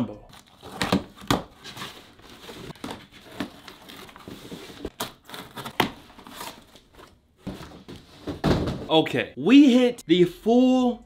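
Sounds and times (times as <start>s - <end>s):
cardboard rustling and crinkling: 0.3s - 8.9s.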